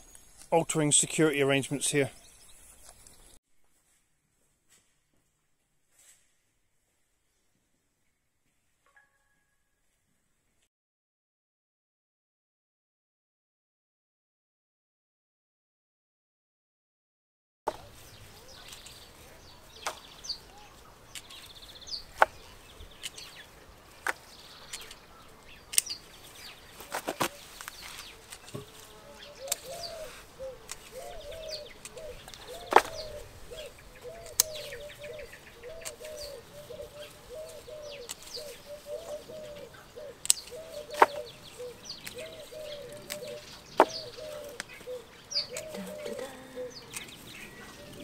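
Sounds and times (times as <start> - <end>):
garden snips clicking: 21.1 - 21.5, 23.0 - 23.3, 24.0 - 25.0, 25.6 - 26.0, 29.4 - 29.8, 30.6 - 33.1, 34.2 - 34.8, 35.8 - 36.3, 37.9 - 38.5, 40.2 - 41.2, 42.0 - 46.3, 46.9 - 47.2
hoopoe hooting call: 29.0 - 48.0.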